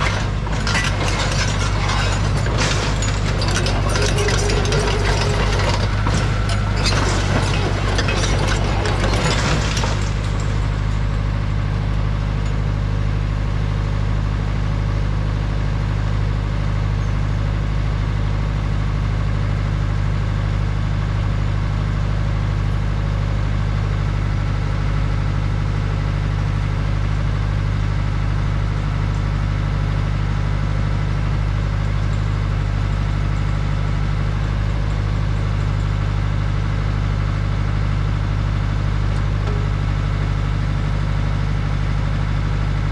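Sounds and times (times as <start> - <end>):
steel tracks clattering: 0.0 - 12.7, 39.2 - 40.3
engine idling: 0.0 - 42.9.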